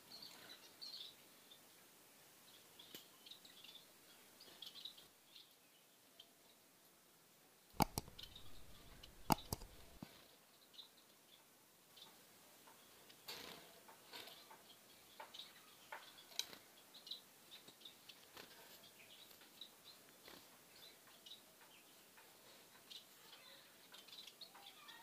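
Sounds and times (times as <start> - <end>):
birds tapping in wire cage: 7.8 - 10.0.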